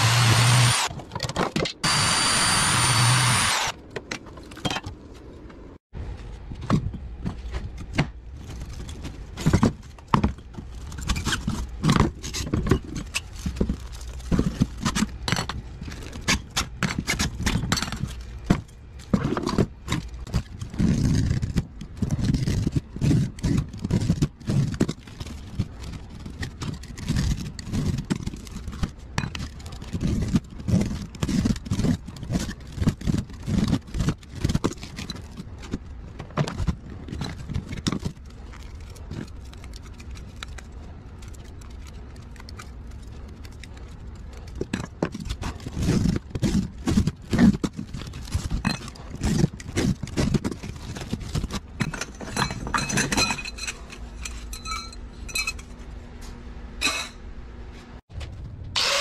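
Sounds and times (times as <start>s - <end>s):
metal clinks and scrapes: 36.9s - 55.9s, 56.8s - 57.2s.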